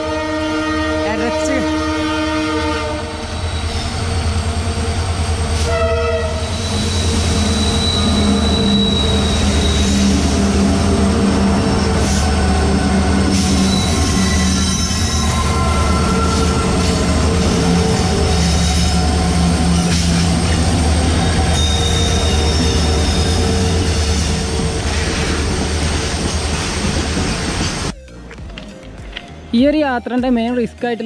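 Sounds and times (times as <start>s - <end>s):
train horn: 0.0s - 3.3s, 5.6s - 20.4s
train rumbling on track: 0.0s - 28.0s
wheels squealing on rails: 3.2s - 27.9s.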